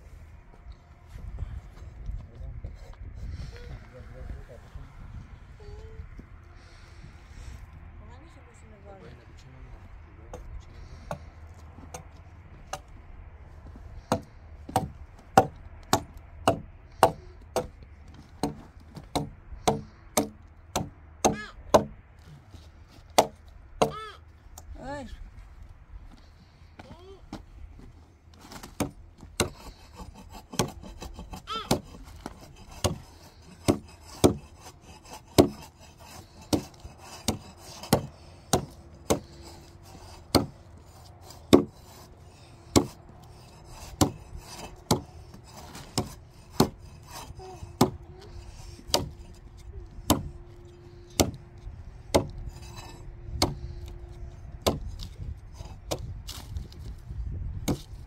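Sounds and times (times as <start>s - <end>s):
hand tool striking wood: 14.0s - 22.0s, 23.0s - 24.7s, 28.4s - 54.0s, 54.6s - 56.8s, 57.6s - 58.0s.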